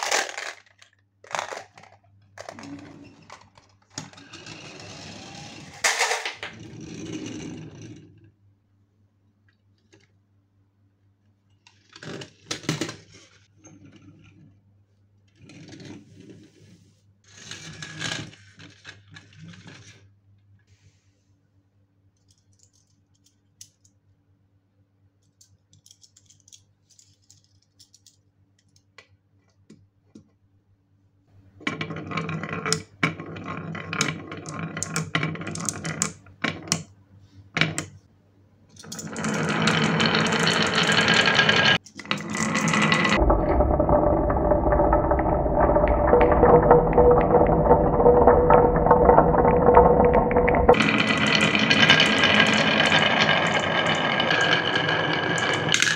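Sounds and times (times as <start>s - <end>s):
toy vehicles clicking and rattling: 0.0s - 2.7s, 22.2s - 23.9s, 25.2s - 28.8s
balls rolling down wooden slope: 31.6s - 36.6s, 38.9s - 55.9s.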